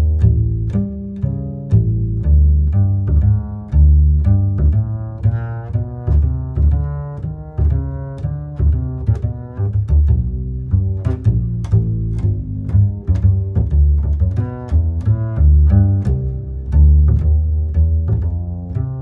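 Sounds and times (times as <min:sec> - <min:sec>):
low string notes: 0:00.0 - 0:19.0.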